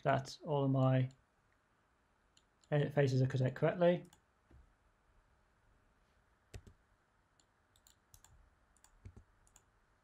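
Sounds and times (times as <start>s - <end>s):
computer mouse and key clicks: 6.5s - 6.8s, 7.4s - 9.7s.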